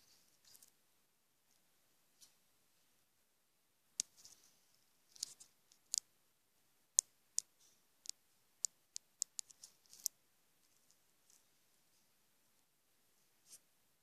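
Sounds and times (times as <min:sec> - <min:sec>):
plastic toys clicking on tile: 0:05.2 - 0:06.1, 0:07.0 - 0:10.2.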